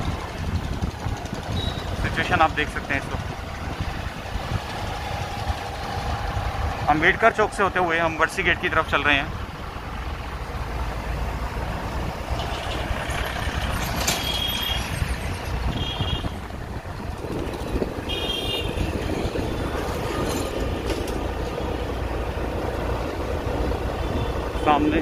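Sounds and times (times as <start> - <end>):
wind noise: 0.0 - 6.9, 12.2 - 24.5
rumble of passing vehicles: 0.0 - 25.0.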